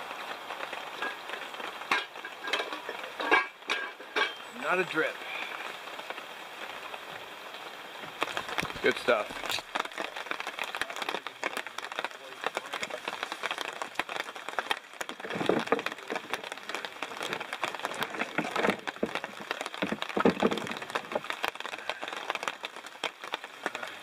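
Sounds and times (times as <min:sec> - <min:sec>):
rain pattering and dripping: 0:00.0 - 0:24.0
rustling knocks: 0:15.0 - 0:16.5, 0:17.2 - 0:21.4.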